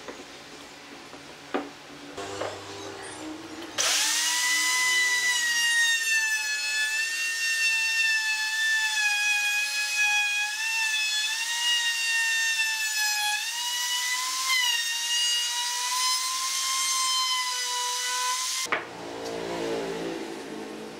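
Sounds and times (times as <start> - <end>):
router motor whine cutting wood: 2.2 - 8.8.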